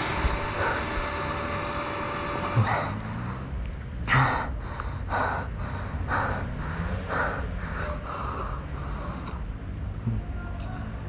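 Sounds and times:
person panting hard: 0.0s - 1.6s, 2.6s - 9.5s
low steady rumble: 0.0s - 11.0s.

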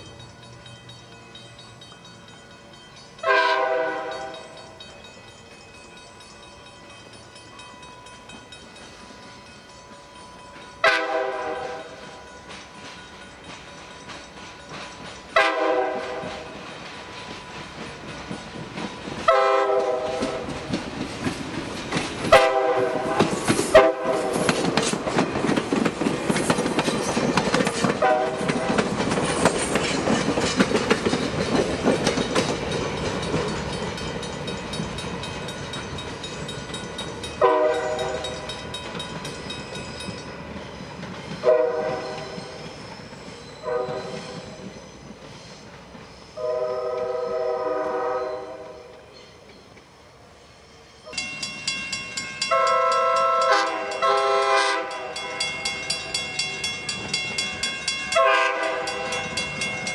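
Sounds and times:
wheels clacking on rails: 0.0s - 50.0s, 51.1s - 59.9s
train horn blasts: 3.2s - 4.5s, 10.8s - 12.0s, 15.4s - 16.5s, 19.3s - 20.5s, 22.3s - 24.4s, 28.0s - 28.8s, 37.4s - 38.4s, 41.4s - 42.4s, 43.6s - 44.4s, 46.4s - 48.9s, 52.4s - 55.4s, 58.1s - 59.4s.

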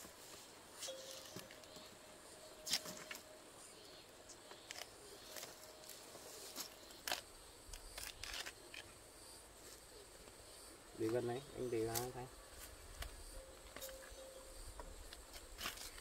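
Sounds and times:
bark cracking and tearing: 6.6s - 8.9s.

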